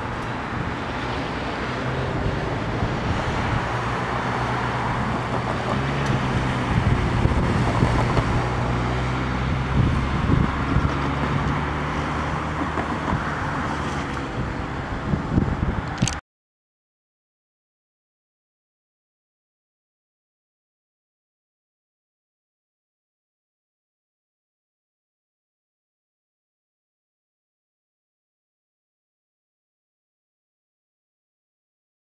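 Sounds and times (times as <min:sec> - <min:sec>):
low engine drone: 0:00.0 - 0:16.2
road or wind rumble: 0:00.0 - 0:16.2.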